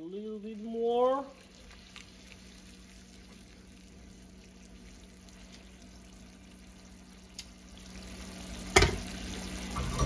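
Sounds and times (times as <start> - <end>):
sauce bubbling in a frying pan: 0.0 - 10.0.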